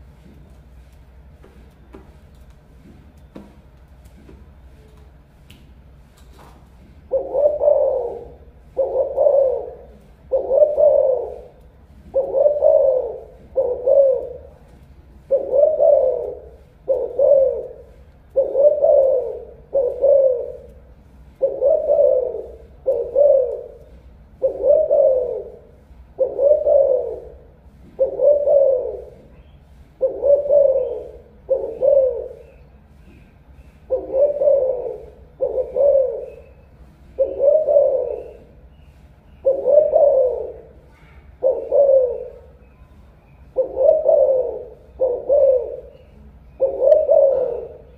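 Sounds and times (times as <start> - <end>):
dove cooing: 7.0 - 47.9.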